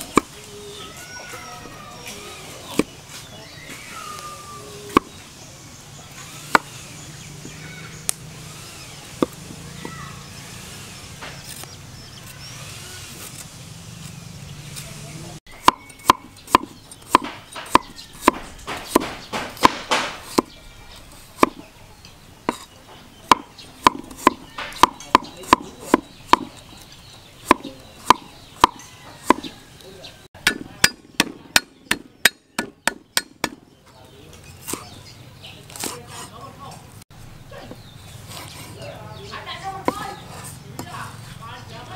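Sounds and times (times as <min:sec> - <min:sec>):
cleaver chopping on wooden block: 0:04.9 - 0:05.2, 0:06.5 - 0:06.8, 0:09.1 - 0:10.0, 0:15.6 - 0:20.6, 0:22.5 - 0:26.6, 0:27.4 - 0:29.6, 0:30.4 - 0:33.6.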